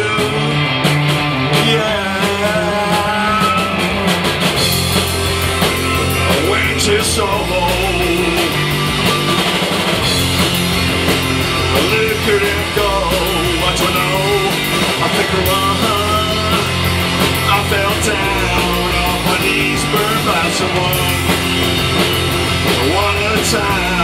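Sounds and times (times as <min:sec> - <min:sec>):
person singing: 0:00.0 - 0:00.8, 0:01.4 - 0:04.0, 0:06.0 - 0:08.8, 0:11.5 - 0:21.5, 0:22.6 - 0:24.0
punk rock band playing live: 0:00.0 - 0:24.0.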